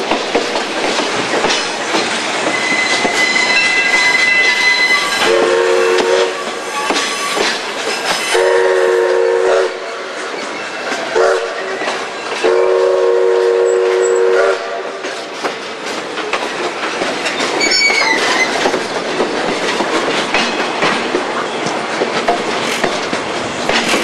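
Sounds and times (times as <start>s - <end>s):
train wheels clickety-clack: 0.0s - 24.0s
high squeal: 2.5s - 5.3s, 6.6s - 8.4s, 17.5s - 18.6s.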